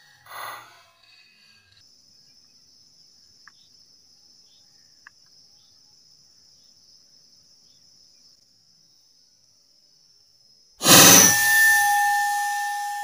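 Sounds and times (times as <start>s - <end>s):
faint ticks: 3.4s - 3.7s, 4.8s - 5.4s
high-pitched insect drone: 10.8s - 13.0s
short loud burst: 10.8s - 13.0s.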